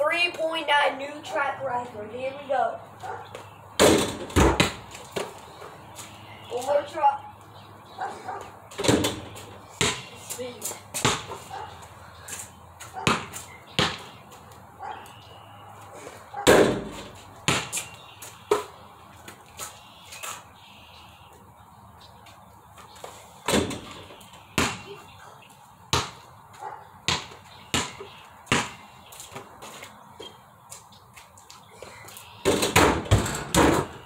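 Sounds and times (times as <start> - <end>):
basketball bouncing: 3.8 - 5.4, 8.7 - 10.1, 10.9 - 11.5, 12.8 - 14.2, 16.4 - 17.8, 23.5 - 25.0, 25.9 - 26.2, 27.1 - 28.8
basketball striking hoop: 11.0 - 11.3.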